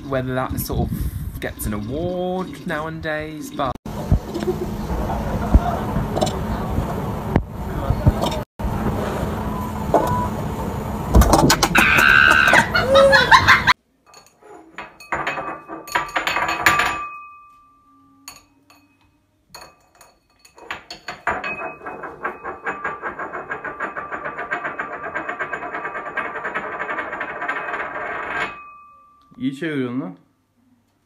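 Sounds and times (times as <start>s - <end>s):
ceramic bowl spinning and rattling: 14.1s - 17.2s, 19.6s - 28.9s.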